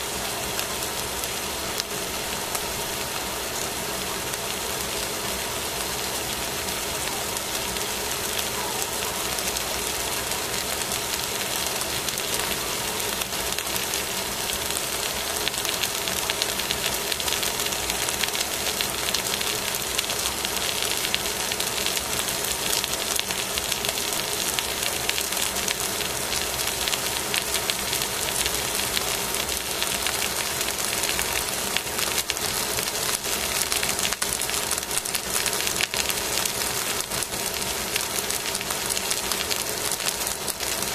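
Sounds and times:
fish sizzling on foil: 9.1s - 40.9s.

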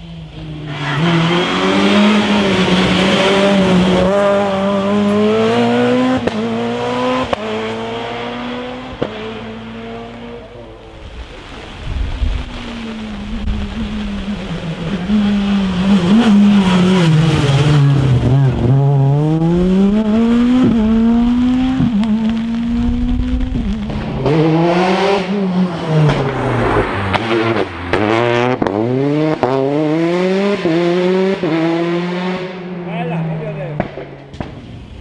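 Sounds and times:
rally car engine revving: 0.0s - 35.0s
tyre hiss on wet road: 10.7s - 16.1s.

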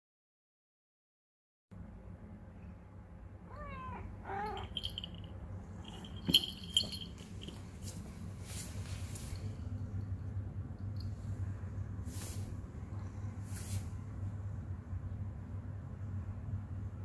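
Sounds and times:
cat meowing: 3.5s - 4.8s.

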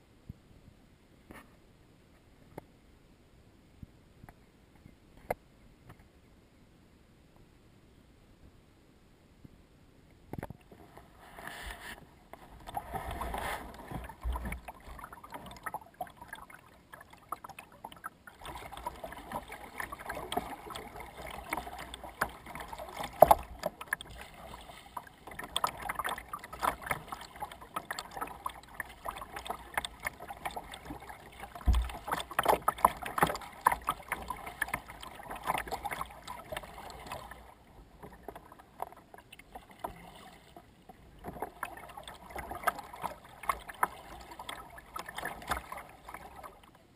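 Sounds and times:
water splashing against kayak hull: 10.3s - 46.9s.

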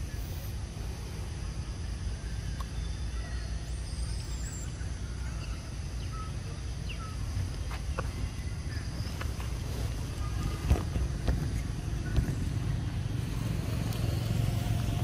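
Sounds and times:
steady low rumble: 4.8s - 15.0s.

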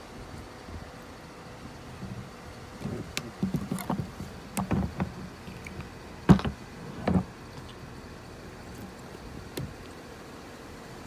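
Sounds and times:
camera handling knocks and rubbing: 2.8s - 7.3s.

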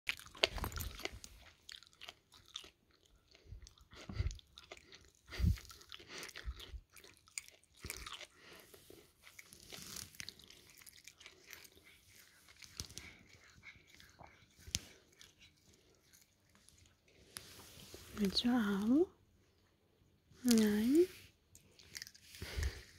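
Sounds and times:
cat chewing wet smacks: 0.1s - 17.3s.

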